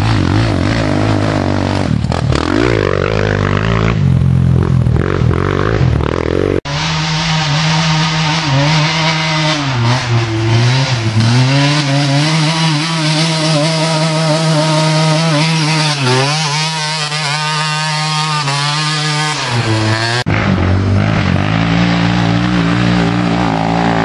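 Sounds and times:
small engine revving: 6.6s - 24.0s.

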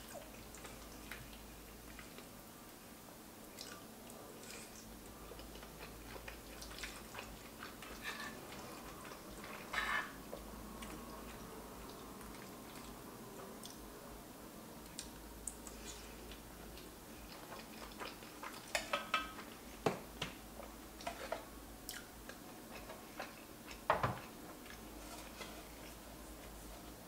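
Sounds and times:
person chewing pasta: 3.5s - 13.8s, 14.8s - 19.6s, 20.6s - 27.0s.

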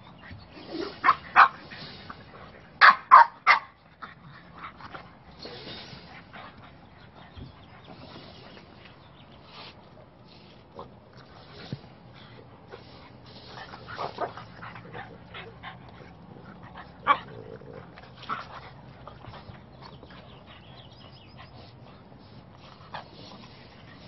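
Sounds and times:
dogs barking and yipping: 0.0s - 4.8s.

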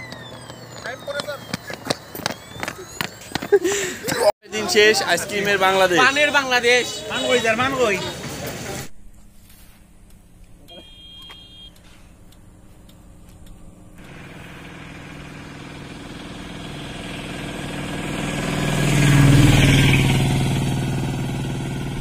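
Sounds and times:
vehicle passing by: 13.9s - 22.0s.

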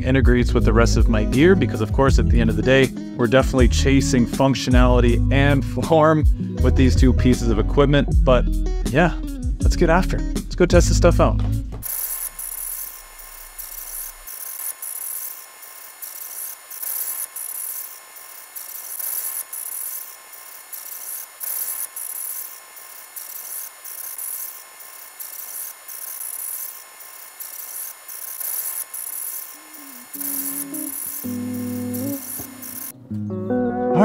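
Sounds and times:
rhythmic hiss of shakers: 11.8s - 32.9s.

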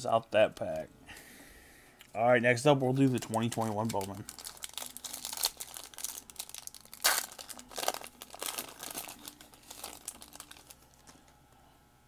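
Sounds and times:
foil wrapper tearing and crinkling: 2.9s - 11.1s.

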